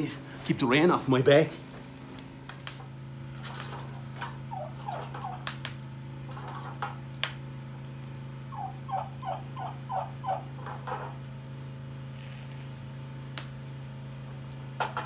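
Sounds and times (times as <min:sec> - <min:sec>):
steady low hum: 0:00.0 - 0:15.0
wood fire crackling: 0:00.0 - 0:15.0
turkey calling: 0:04.5 - 0:05.5, 0:08.5 - 0:10.6.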